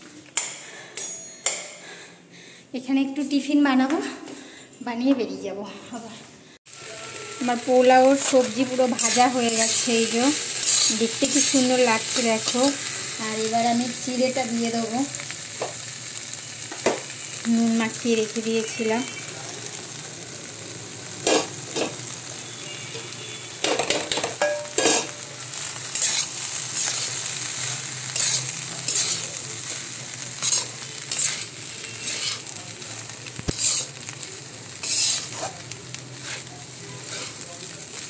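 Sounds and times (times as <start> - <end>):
food sizzling in a pan: 6.7 - 38.0
metal spatula scraping a pan: 6.8 - 13.1, 21.2 - 22.0, 22.9 - 32.6, 33.3 - 38.0.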